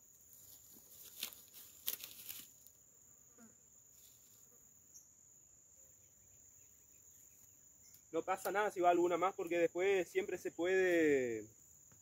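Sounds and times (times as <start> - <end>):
insects droning: 0.0 - 12.0
brief rustling: 0.5 - 2.6.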